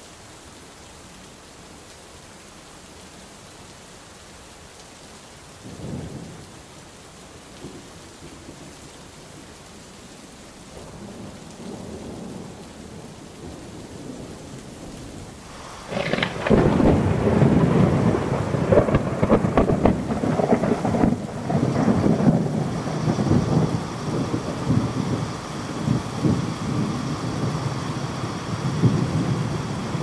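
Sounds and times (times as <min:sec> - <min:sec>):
rain: 0:00.0 - 0:30.0
distant thunder rumble: 0:10.8 - 0:30.0
loud crackling thunderclap: 0:15.5 - 0:30.0.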